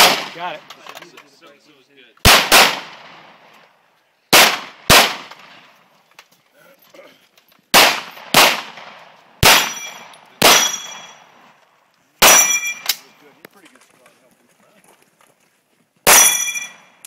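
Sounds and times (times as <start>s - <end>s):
handgun shots echoing: 7.8s - 11.2s
steel targets ringing: 9.5s - 11.3s, 12.2s - 13.0s, 16.1s - 17.0s.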